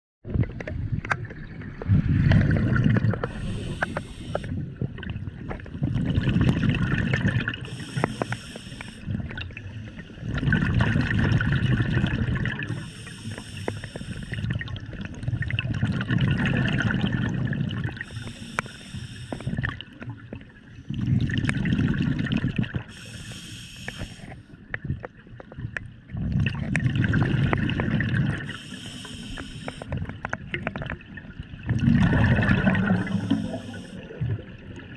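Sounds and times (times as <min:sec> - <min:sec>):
exhaled bubbles gurgling: 0:00.3 - 0:34.9
regulator breathing hiss: 0:03.3 - 0:04.5, 0:07.6 - 0:09.0, 0:12.7 - 0:14.4, 0:18.0 - 0:19.6, 0:22.9 - 0:24.5, 0:28.4 - 0:29.9, 0:33.0 - 0:34.0.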